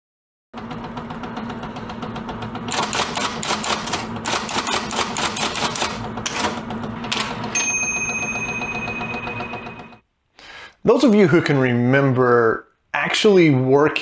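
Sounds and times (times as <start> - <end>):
typewriter keys clacking: 2.7 - 7.4
typewriter bell ding: 7.4 - 10.0.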